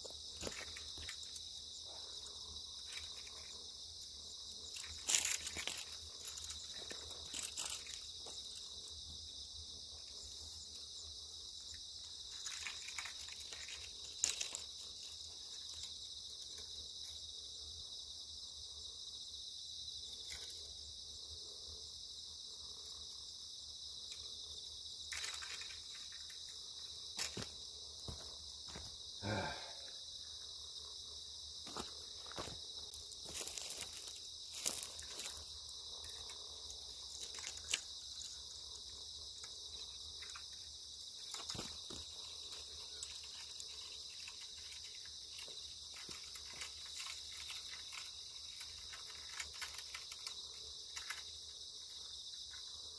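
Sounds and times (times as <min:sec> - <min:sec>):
high-pitched insect chorus: 0:00.0 - 0:52.9.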